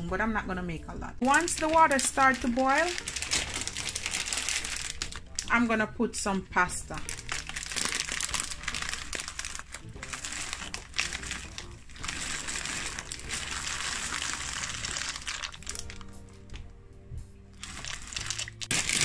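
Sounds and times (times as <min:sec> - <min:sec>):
plastic bag crinkling: 0:01.2 - 0:05.5, 0:06.9 - 0:16.2, 0:17.6 - 0:19.0
dry pasta pouring into water: 0:01.3 - 0:05.5, 0:07.0 - 0:16.1, 0:17.6 - 0:19.0.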